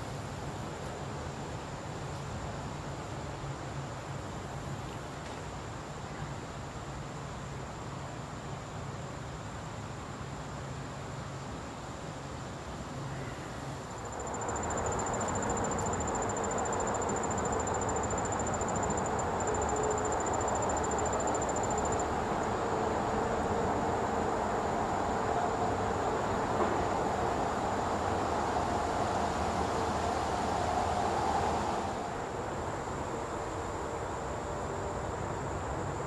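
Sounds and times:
insects trilling: 12.6s - 36.0s.

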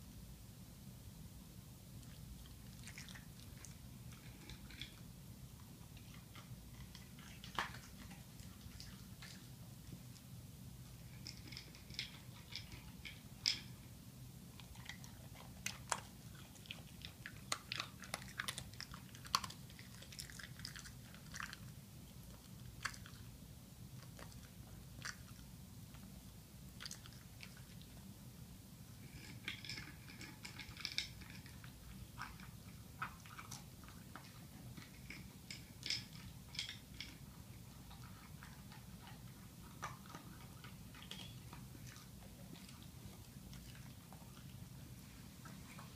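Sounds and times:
dog crunching dry kibble: 2.0s - 13.8s, 14.4s - 23.3s, 29.0s - 45.0s.

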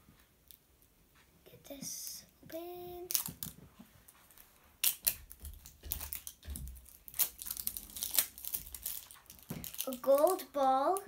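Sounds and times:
wrapping crinkling and peeling: 3.0s - 11.0s.

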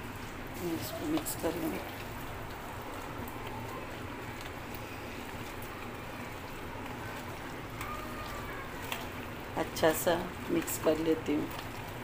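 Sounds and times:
hand kneading wet meat: 0.0s - 12.0s.

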